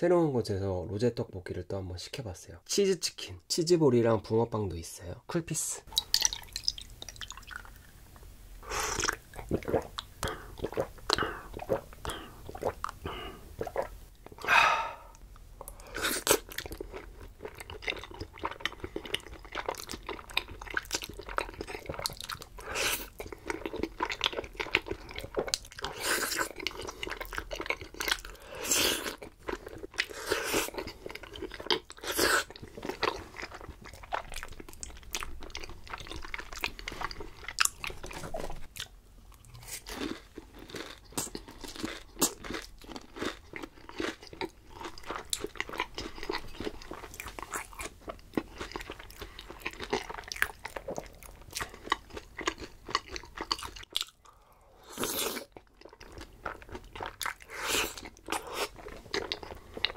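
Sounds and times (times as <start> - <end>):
crunchy biting and chewing: 15.9 - 59.9.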